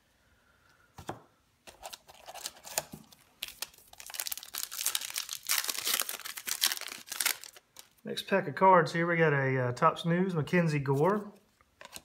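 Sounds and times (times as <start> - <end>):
card pack wrapper crinkling and tearing: 1.7 - 8.0.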